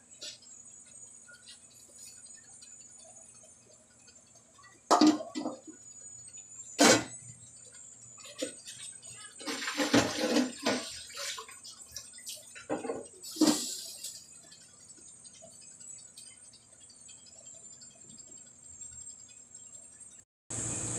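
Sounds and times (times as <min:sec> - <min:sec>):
liquid splashing in a wok: 0:04.3 - 0:05.9, 0:08.2 - 0:19.8
metal lid clanking onto pan: 0:04.9 - 0:05.8.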